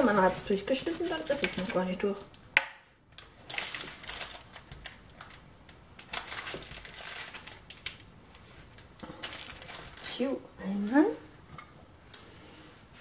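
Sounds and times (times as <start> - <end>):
paper rustling: 6.0 - 10.2.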